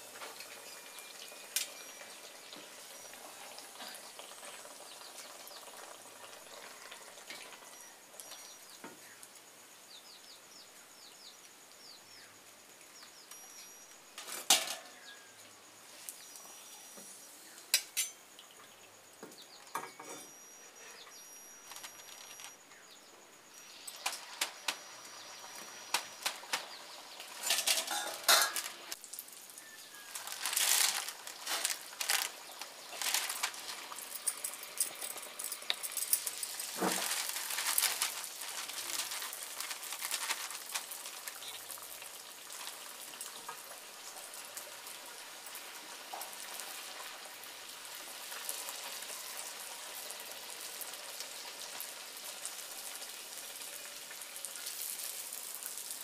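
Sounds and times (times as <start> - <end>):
faint oil sizzle: 0.0 - 21.3, 22.7 - 56.0
metal skimmers clinking: 14.2 - 15.1, 27.3 - 29.0, 30.1 - 41.7
rustling and handling noise: 19.8 - 22.6, 29.9 - 41.7.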